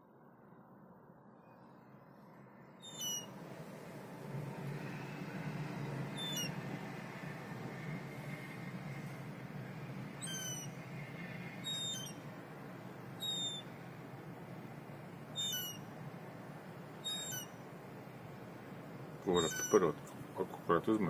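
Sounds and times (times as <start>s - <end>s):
low background hum: 0.0s - 21.0s
gull peeping calls: 2.9s - 3.2s, 6.2s - 6.6s, 10.2s - 10.7s, 11.6s - 12.2s, 13.2s - 13.7s, 15.4s - 15.9s, 17.0s - 17.6s, 19.3s - 20.0s.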